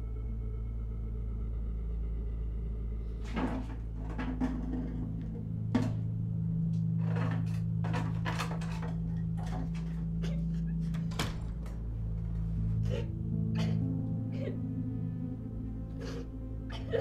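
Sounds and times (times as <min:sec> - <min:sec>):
low steady drone: 0:00.0 - 0:17.0
door clunks and clicks: 0:07.1 - 0:11.9.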